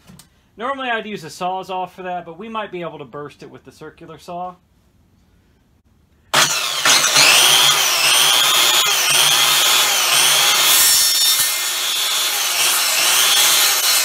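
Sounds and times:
circular saw cutting wood: 6.3 - 14.0.

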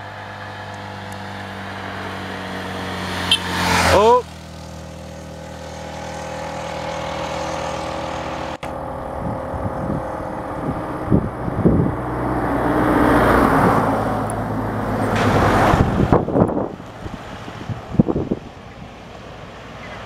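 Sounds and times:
vehicle engine humming: 0.0 - 20.0
vehicles passing on road: 0.0 - 20.0
wind thumps on microphone: 15.1 - 18.7.

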